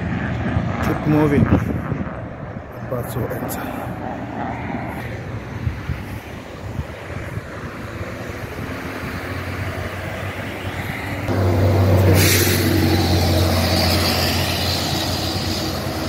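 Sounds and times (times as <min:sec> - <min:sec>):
bus engine drone: 0:00.0 - 0:16.0
road traffic: 0:00.0 - 0:16.0
bus hiss passing: 0:11.3 - 0:16.0.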